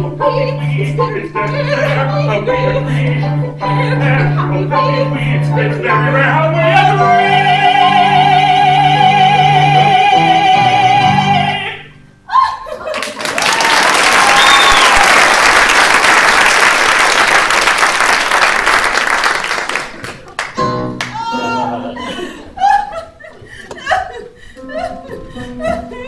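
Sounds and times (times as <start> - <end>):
woman and man singing duet: 0.0 - 12.5
audience whooping: 12.3 - 20.4
audience applauding: 12.8 - 21.2.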